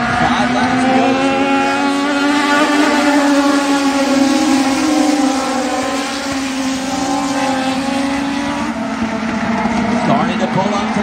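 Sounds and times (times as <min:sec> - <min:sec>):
race car engines at high revs: 0:00.0 - 0:11.0.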